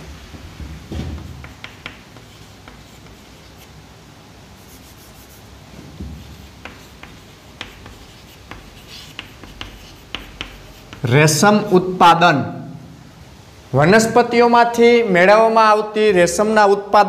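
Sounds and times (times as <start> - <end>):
chalk tapping and scratching: 1.0 - 3.8, 4.6 - 11.8
dull thump: 5.7 - 6.4.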